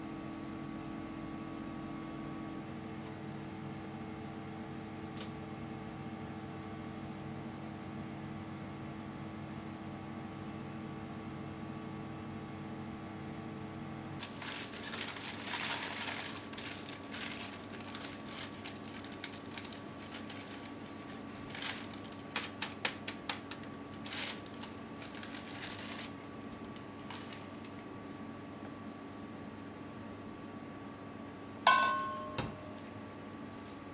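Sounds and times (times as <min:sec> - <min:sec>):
faint steady hum: 0:00.0 - 0:33.9
sugar pouring hiss: 0:14.2 - 0:21.3
paper rustling: 0:14.2 - 0:27.8.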